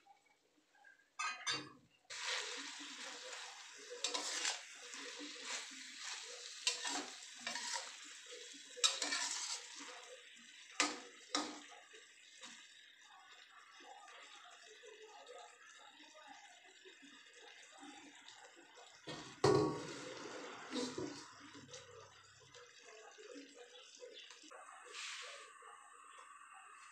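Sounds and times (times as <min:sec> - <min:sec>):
metal spatula scraping wok: 0:02.1 - 0:10.1, 0:19.7 - 0:21.3
chillies sizzling in oil: 0:02.1 - 0:26.9.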